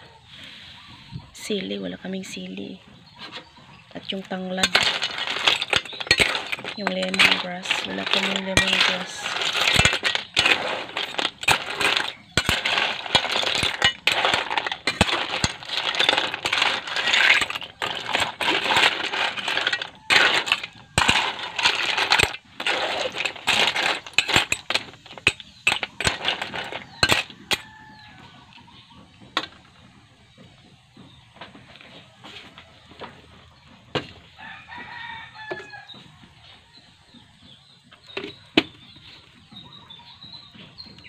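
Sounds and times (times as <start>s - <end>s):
shells clattering in a metal wok: 4.5s - 28.1s.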